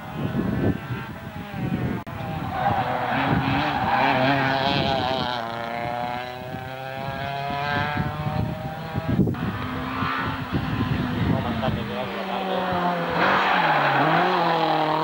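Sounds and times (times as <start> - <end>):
race car engine revving: 1.4 - 15.0.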